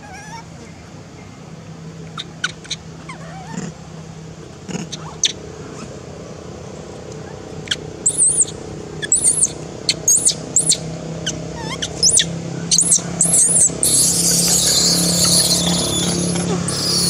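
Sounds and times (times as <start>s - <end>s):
monkey chirps: 2.1s - 3.7s, 4.7s - 5.4s, 7.7s - 17.0s
baby monkey squealing: 4.7s - 5.4s, 7.7s - 17.0s.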